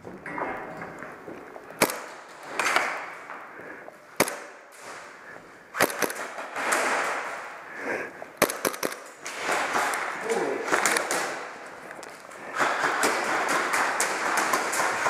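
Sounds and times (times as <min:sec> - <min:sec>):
airsoft pistol shots: 0:01.8 - 0:03.0, 0:04.2 - 0:04.6, 0:05.8 - 0:07.4, 0:08.4 - 0:10.1.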